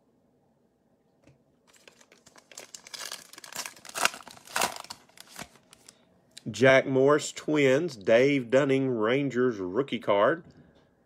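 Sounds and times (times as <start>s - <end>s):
foil wrapper crinkling: 1.7s - 6.0s.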